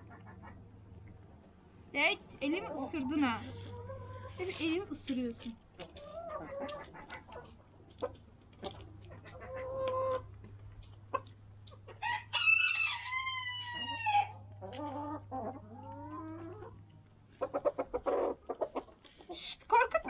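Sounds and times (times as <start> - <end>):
hens clucking: 0.0 - 20.0
rooster crowing: 12.0 - 14.4.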